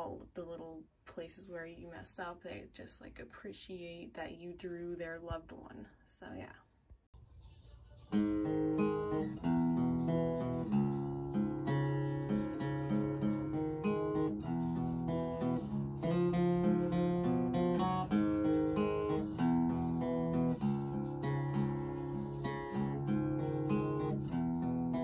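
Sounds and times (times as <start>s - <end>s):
acoustic guitar plucked: 8.1s - 25.0s.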